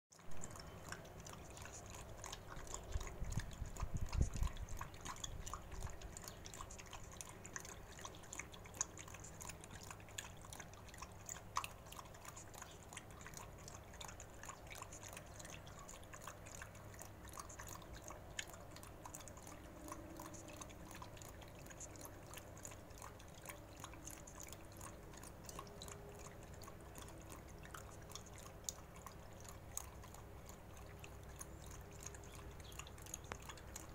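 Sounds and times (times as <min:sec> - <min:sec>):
dog lapping and chewing: 0:00.1 - 0:33.9.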